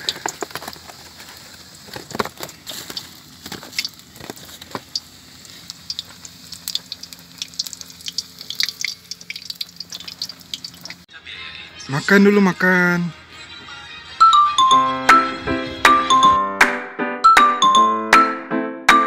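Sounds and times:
chicken sizzling in oil: 0:00.0 - 0:11.1.

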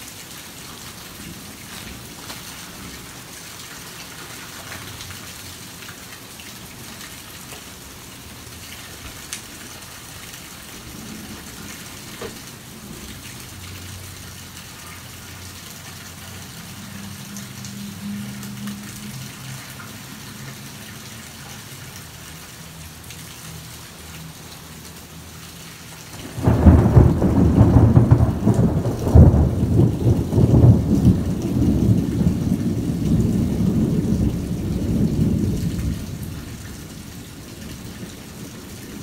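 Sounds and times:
steady rain: 0:00.0 - 0:39.0
loud rumble of thunder: 0:26.2 - 0:39.0.

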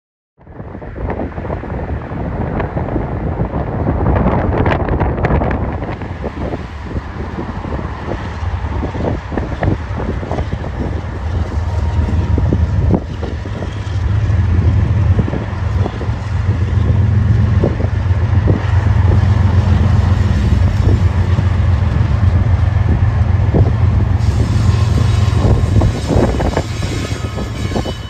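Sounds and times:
locomotive engine drone: 0:00.6 - 0:28.0.

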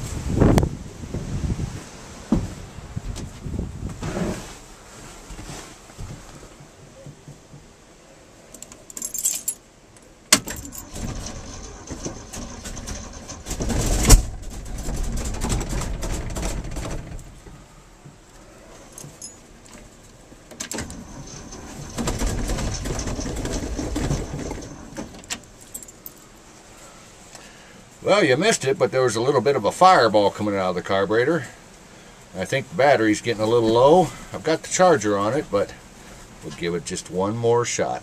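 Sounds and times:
keys jangling: 0:08.9 - 0:09.6, 0:18.9 - 0:19.4
engine cranking by starter: 0:10.3 - 0:17.4, 0:20.6 - 0:25.6
engine backfire pop: 0:12.0 - 0:17.2.

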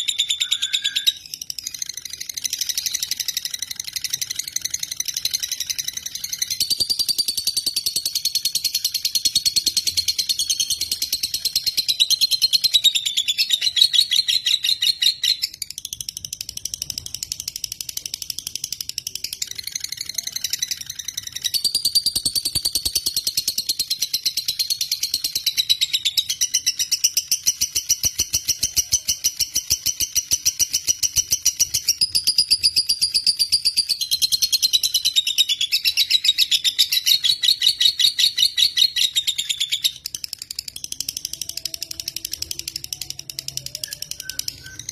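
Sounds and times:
lovebird chattering trill: 0:00.0 - 0:15.8.

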